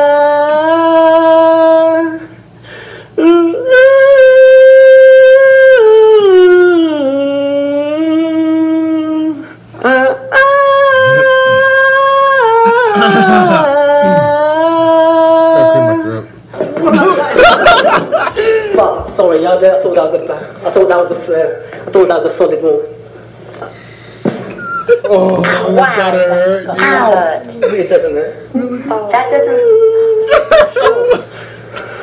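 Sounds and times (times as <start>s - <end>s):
man singing wailing notes: 0.0s - 2.3s, 3.2s - 16.3s.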